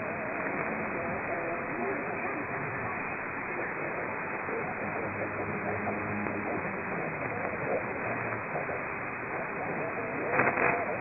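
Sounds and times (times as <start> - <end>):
faint radio programme audio: 0.0 - 11.0
radio static and hiss: 0.0 - 11.0.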